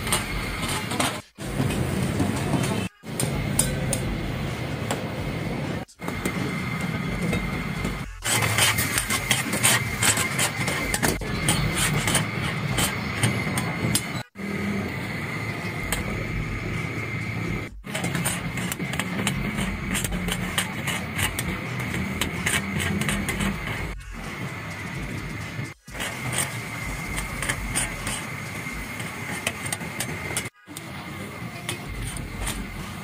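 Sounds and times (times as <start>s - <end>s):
gas burners roaring: 0.0s - 33.0s
chicken frying in hot oil: 8.2s - 33.0s.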